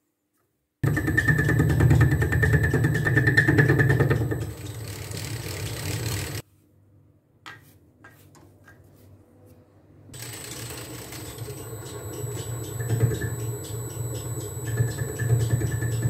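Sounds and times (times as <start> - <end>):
lathe cutting with rapid ticking: 0.8 - 6.4, 10.2 - 16.0.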